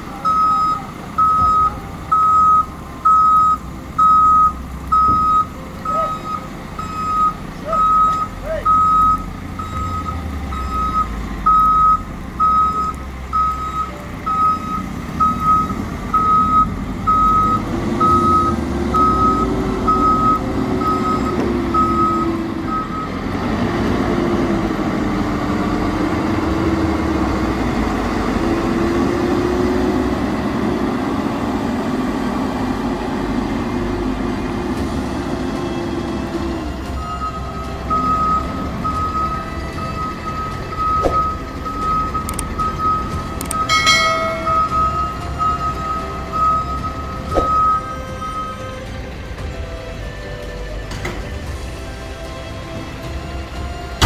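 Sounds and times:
diesel engine running: 0.0s - 54.0s
reversing alarm beeping: 0.1s - 23.3s, 36.9s - 48.8s.

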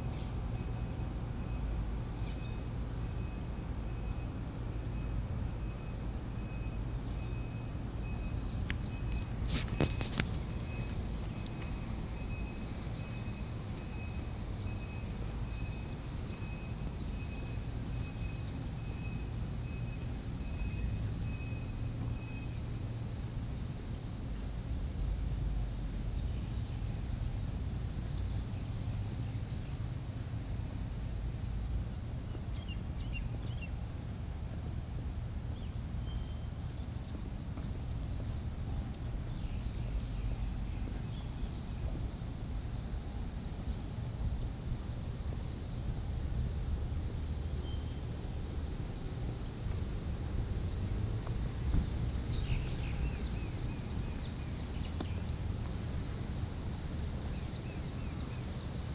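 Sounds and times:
faint high chirps: 0.1s - 22.9s
wind noise on microphone: 36.4s - 58.9s.

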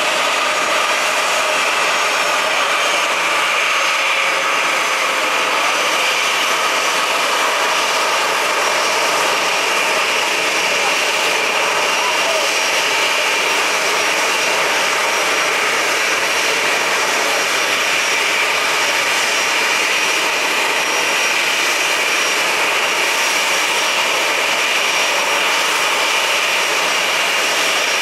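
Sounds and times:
jet engines idling: 0.0s - 28.0s.

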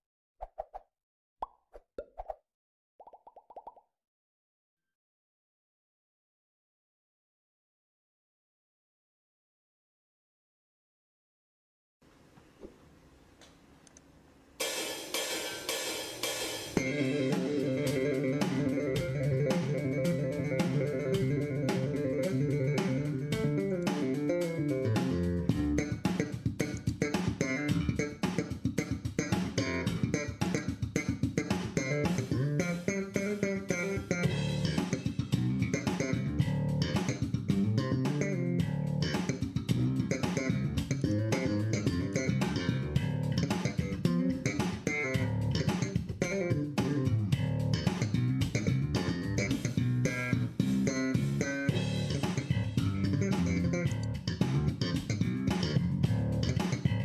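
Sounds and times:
guitar and bass music with beat: 14.6s - 57.0s.

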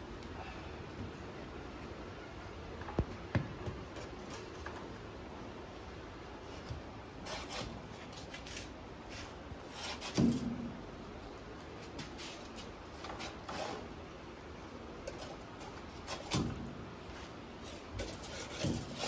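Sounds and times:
metal rod scraping in wet soil: 7.2s - 10.4s, 13.1s - 13.9s, 17.6s - 19.0s.

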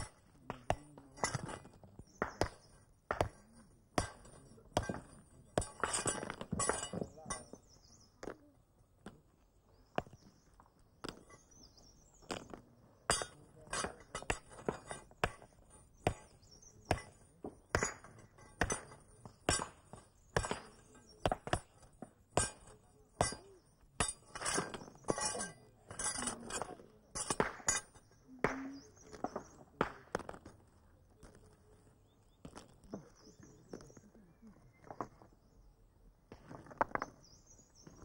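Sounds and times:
hammer striking stones: 0.0s - 8.4s, 11.0s - 11.6s, 12.2s - 30.6s, 36.3s - 38.0s.

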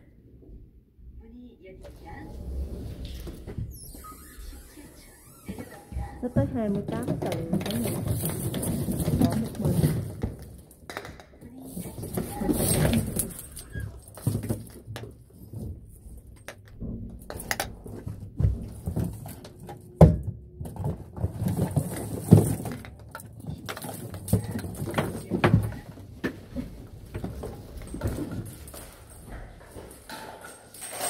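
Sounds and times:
knocks and rustling: 5.4s - 31.0s
metal shower hoses clinking: 11.5s - 15.6s, 26.5s - 31.0s.

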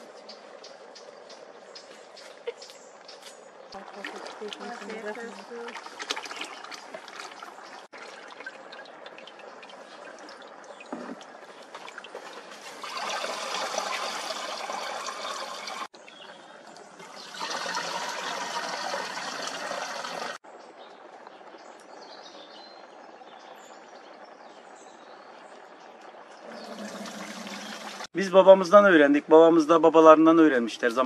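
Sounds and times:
liquid pouring into plastic bucket: 3.8s - 15.9s, 16.8s - 20.3s, 26.4s - 28.1s.

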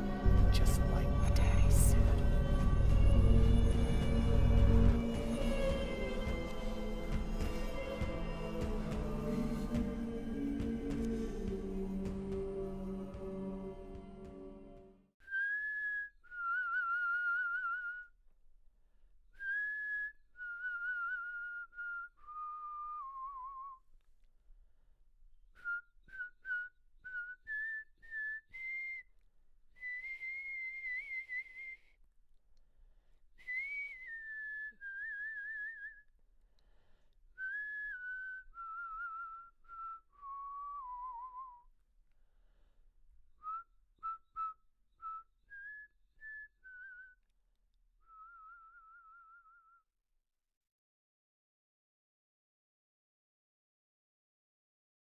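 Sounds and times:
person whistling a tune: 15.2s - 18.1s, 19.4s - 23.9s, 25.6s - 29.1s, 29.8s - 32.0s, 33.4s - 36.1s, 37.4s - 41.7s, 43.4s - 47.3s, 48.0s - 49.9s.

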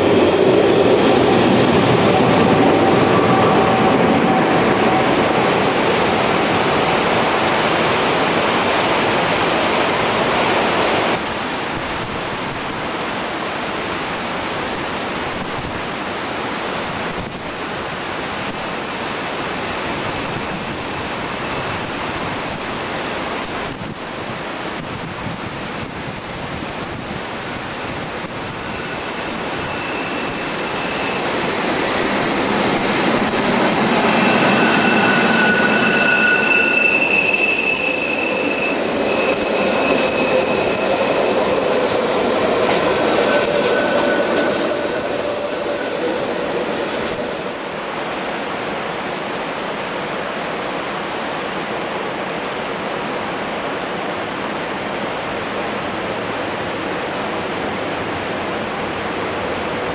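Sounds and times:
electric train passing: 0.0s - 16.6s, 17.6s - 59.9s
wheel squeal whine: 27.8s - 47.7s.

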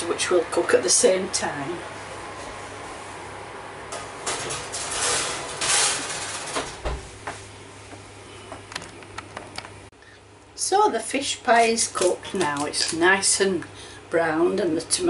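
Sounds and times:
scraping and rustling: 4.0s - 7.0s.

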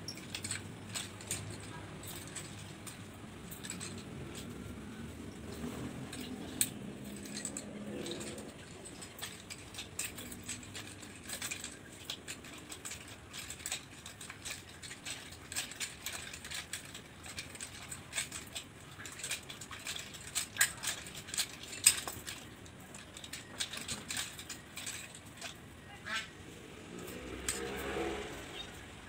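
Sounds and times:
nunchaku rattling and clacking: 0.0s - 29.0s.

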